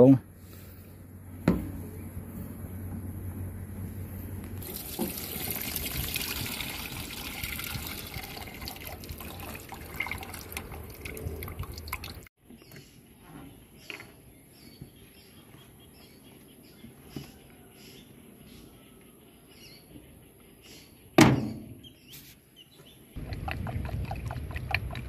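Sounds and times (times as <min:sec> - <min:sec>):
oil trickling into steel pot: 0:04.6 - 0:12.3.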